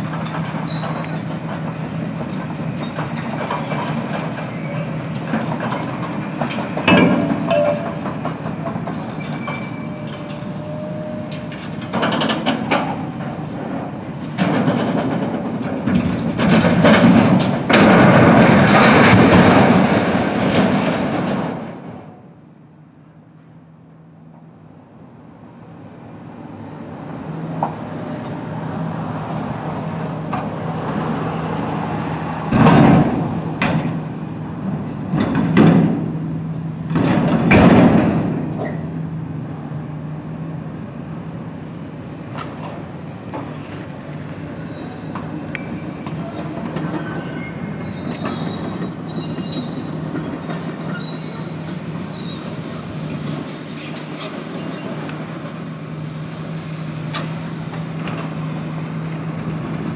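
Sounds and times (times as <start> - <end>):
high metallic squeals: 0.7 - 11.7, 44.2 - 55.4
loud crashes: 16.4 - 22.0
diesel engine humming: 22.2 - 53.7.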